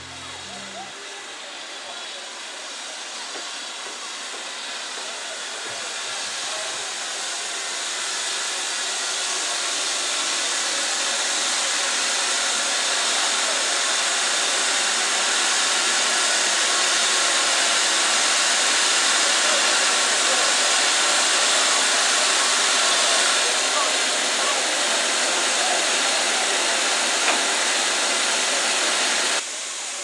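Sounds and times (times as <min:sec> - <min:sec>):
steam locomotive hissing: 0:00.0 - 0:30.0.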